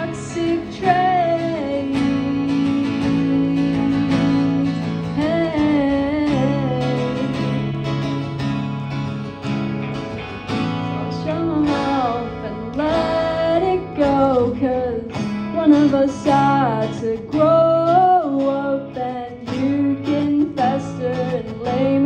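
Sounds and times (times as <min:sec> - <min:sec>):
sliding guitar melody: 0:00.0 - 0:22.0
rock band playing live: 0:06.1 - 0:11.2.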